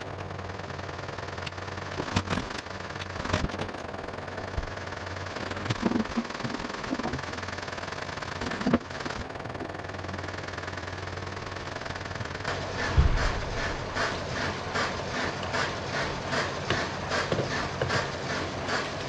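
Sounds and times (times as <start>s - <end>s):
steady rushing hum: 0.0s - 19.0s
knocks and clatters of tools: 1.4s - 3.9s, 5.4s - 7.4s, 8.4s - 9.8s, 16.6s - 18.2s.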